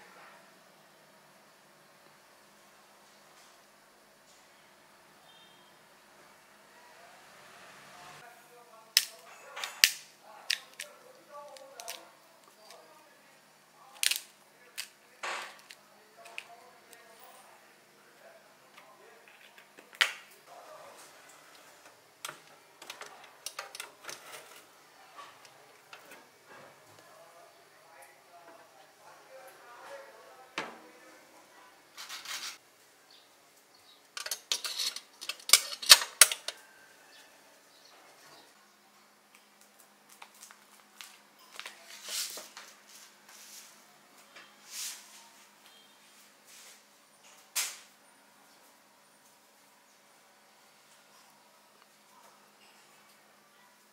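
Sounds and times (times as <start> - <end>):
metal baking tray clinking: 34.2 - 36.6
soft hisses: 44.6 - 45.5.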